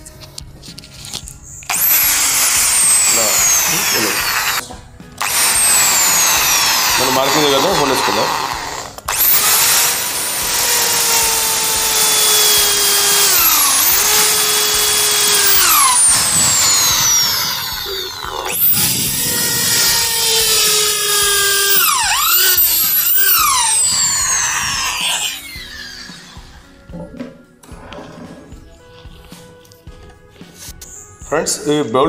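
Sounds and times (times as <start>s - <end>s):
electric drill whining: 1.7s - 26.7s.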